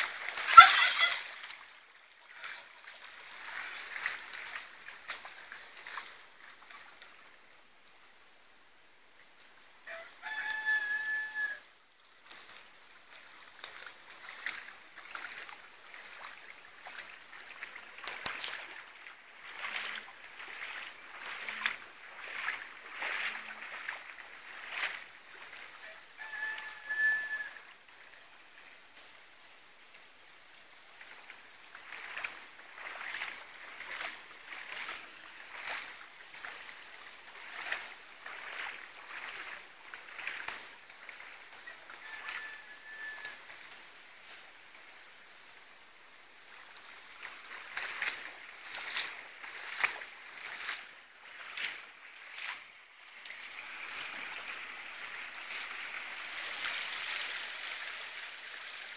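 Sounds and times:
feet splashing through water: 0:00.0 - 0:07.4, 0:12.2 - 0:58.9
peacock calling: 0:00.4 - 0:01.4, 0:09.9 - 0:11.7, 0:25.8 - 0:27.7, 0:41.6 - 0:43.4.

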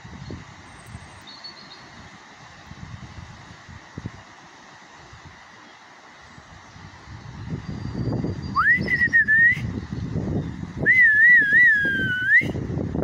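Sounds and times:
wind rumble on microphone: 0:00.0 - 0:01.2, 0:01.8 - 0:04.4, 0:06.3 - 0:13.0
person whistling: 0:08.6 - 0:09.6, 0:10.9 - 0:12.6.

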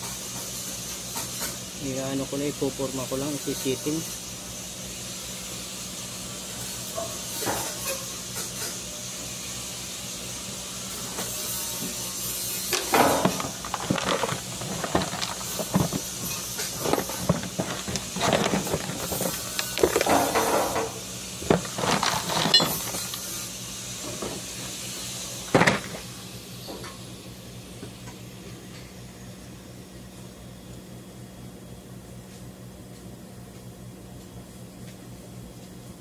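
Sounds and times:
knocks clanks and scraping: 0:12.8 - 0:23.3.

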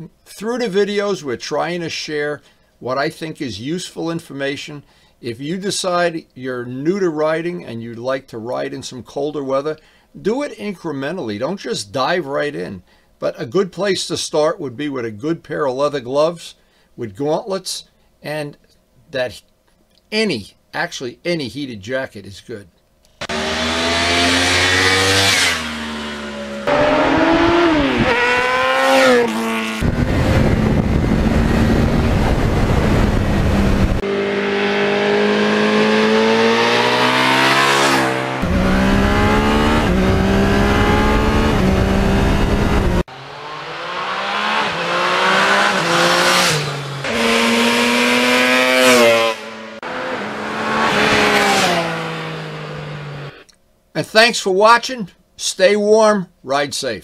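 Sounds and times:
motorcycle engines revving: 0:23.2 - 0:53.4.

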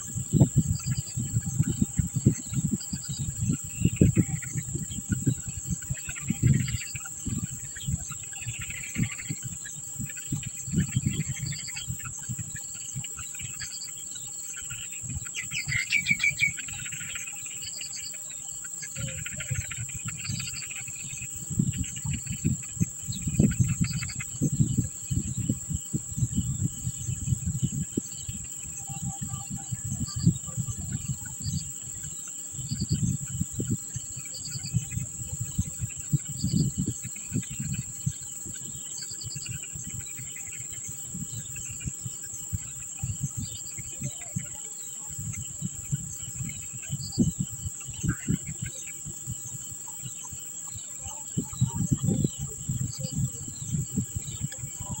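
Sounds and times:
high insect drone: 0:00.0 - 0:55.0
nestlings begging chirps: 0:00.1 - 0:55.0.

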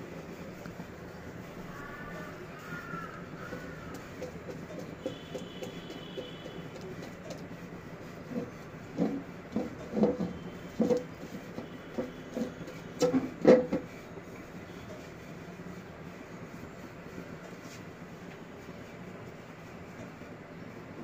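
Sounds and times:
spatula scraping and knocking a pot: 0:08.2 - 0:14.0.

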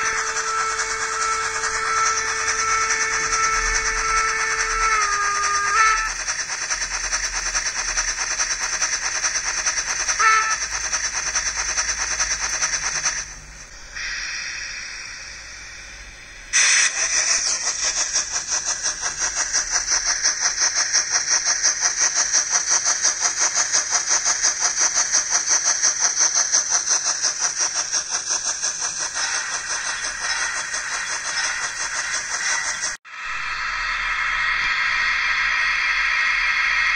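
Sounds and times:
short steam whistle: 0:00.0 - 0:06.4, 0:10.1 - 0:11.0, 0:14.0 - 0:18.1
model steam locomotive chuffing: 0:00.0 - 0:36.9.

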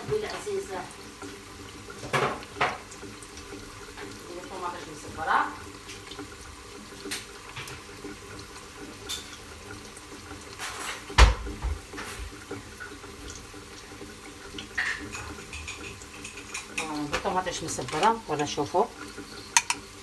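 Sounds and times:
chicken frying in a pot: 0:00.0 - 0:20.0
dishes and utensils clinking: 0:09.0 - 0:09.4, 0:14.7 - 0:18.2, 0:19.1 - 0:19.9.

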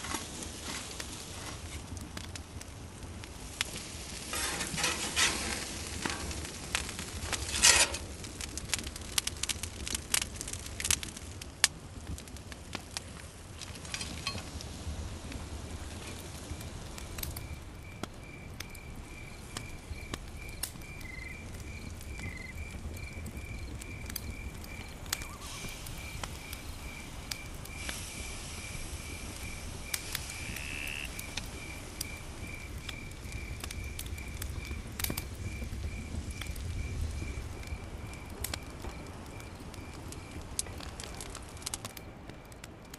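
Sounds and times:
fire pops: 0:00.0 - 0:42.9
wood fire crackling: 0:00.0 - 0:42.9
cricket chirping: 0:17.4 - 0:40.4.

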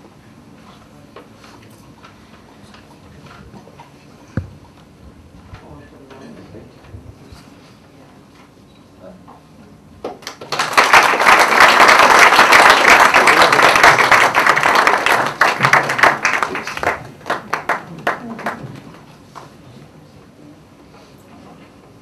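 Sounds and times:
audience applauding: 0:10.2 - 0:18.9.

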